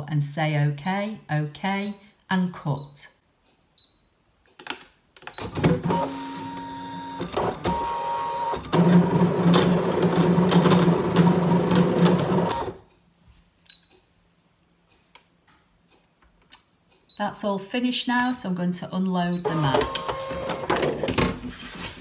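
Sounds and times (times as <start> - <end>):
cutting machine motors whirring: 5.6 - 12.8, 19.4 - 20.9.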